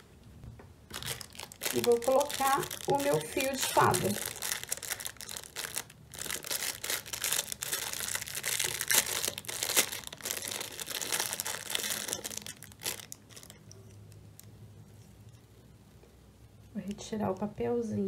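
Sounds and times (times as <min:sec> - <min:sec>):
packaging crinkling: 0:00.9 - 0:14.5.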